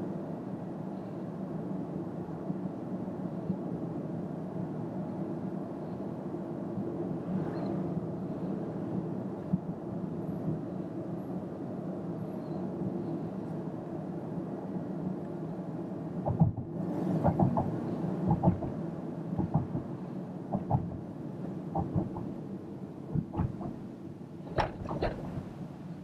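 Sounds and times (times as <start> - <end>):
car tyre and road noise: 0.0 - 26.0
thumps and short knocks: 16.3 - 17.7, 23.1 - 23.8.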